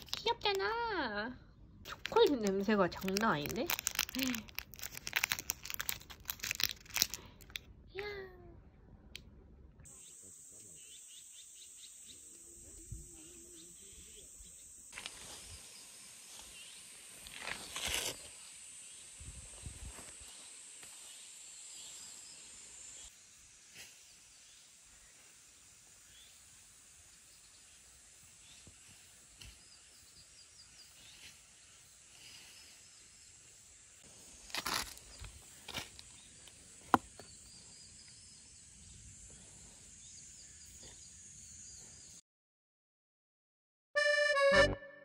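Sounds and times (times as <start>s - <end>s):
bird chirps: 9.9s - 14.8s
steady high hiss: 9.9s - 36.8s.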